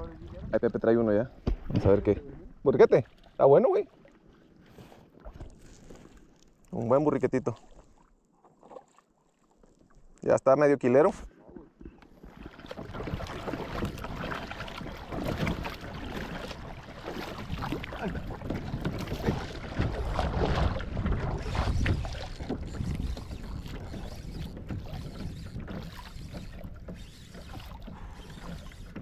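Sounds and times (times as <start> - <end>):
water splashing against kayak: 0.0 - 10.3, 10.9 - 29.0
paddle strokes: 2.9 - 10.1, 11.0 - 29.0
wind buffeting microphone: 17.3 - 27.1.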